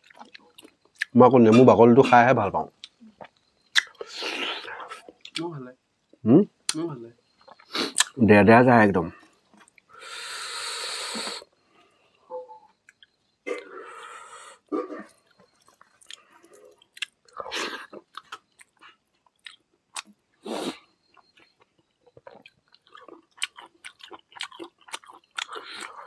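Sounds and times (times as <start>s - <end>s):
chewing and mouth smacks: 0.0s - 1.2s, 2.8s - 4.1s, 7.4s - 8.2s, 9.2s - 9.9s, 12.8s - 13.2s, 15.1s - 20.2s, 21.0s - 26.0s
hissy sounds: 10.0s - 11.5s.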